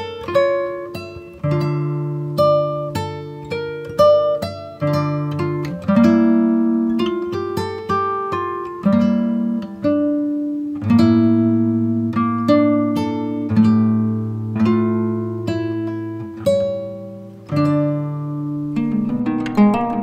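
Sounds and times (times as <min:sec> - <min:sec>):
plucked guitar music: 0:00.0 - 0:20.0.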